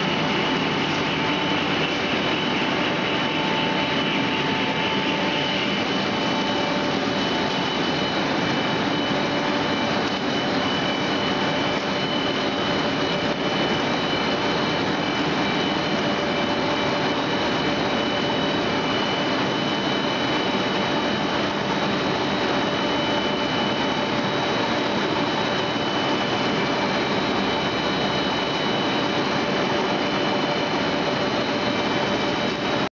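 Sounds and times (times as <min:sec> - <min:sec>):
high steady whining tones: 0:00.0 - 0:32.9
machine running: 0:00.0 - 0:32.9.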